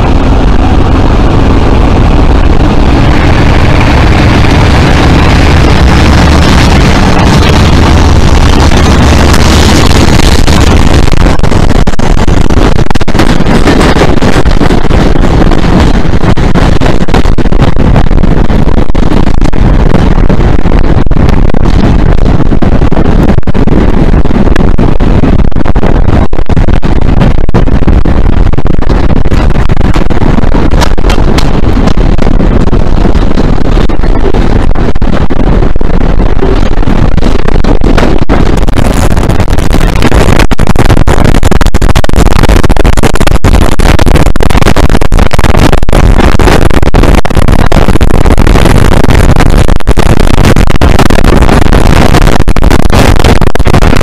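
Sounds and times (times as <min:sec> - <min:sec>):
diesel locomotive engines running: 0:00.0 - 0:22.1, 0:29.3 - 0:39.0
wind buffeting on microphone: 0:00.0 - 0:54.0.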